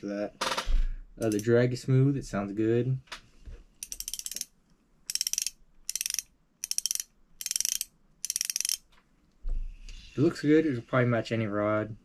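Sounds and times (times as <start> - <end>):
fishing reel drag clicking: 3.8 - 4.5, 5.1 - 8.8.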